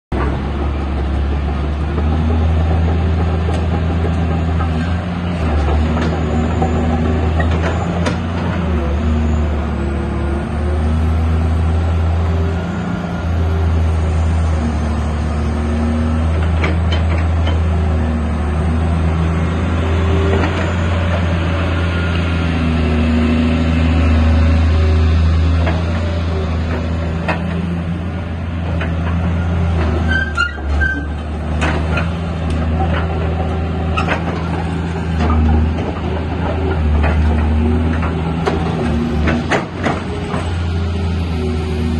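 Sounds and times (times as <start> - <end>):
brief high squeak: 30.0 - 31.2.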